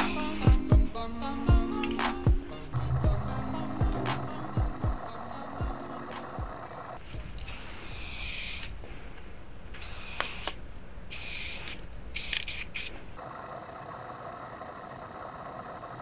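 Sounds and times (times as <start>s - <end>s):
spray can hissing: 0.0s - 0.7s, 7.4s - 8.7s, 9.8s - 12.9s.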